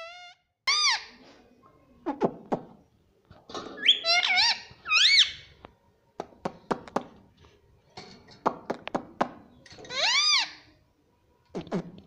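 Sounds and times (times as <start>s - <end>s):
parakeet squeaky calls: 0.0s - 1.1s, 3.8s - 5.5s, 9.9s - 10.6s.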